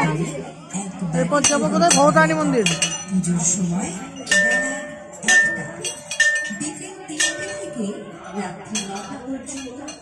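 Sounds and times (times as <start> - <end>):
metal temple bell ringing: 4.2 - 8.1.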